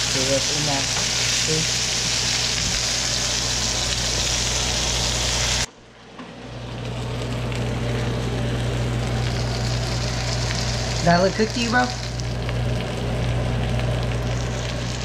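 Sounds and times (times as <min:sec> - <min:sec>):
fish sizzling in hot oil: 0:00.0 - 0:05.7, 0:08.7 - 0:15.0.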